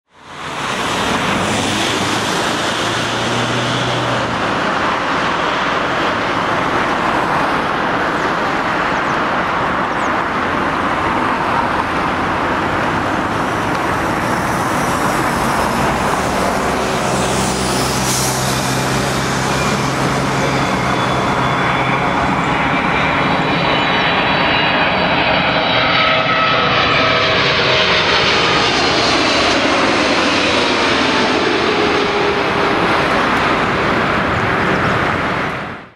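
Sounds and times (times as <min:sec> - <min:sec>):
jet engine roar: 0:00.1 - 0:35.9
engine whine falling in pitch: 0:09.8 - 0:35.8.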